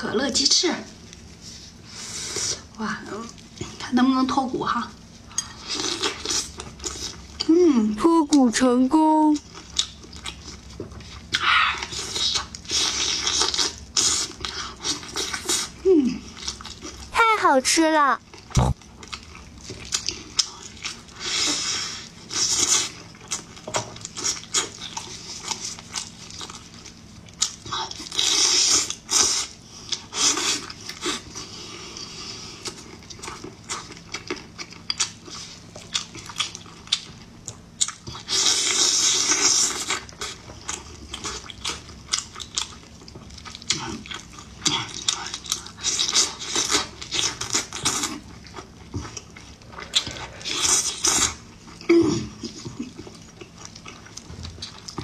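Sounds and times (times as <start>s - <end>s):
person chewing and sucking meat: 9.4s - 17.1s, 18.3s - 55.0s.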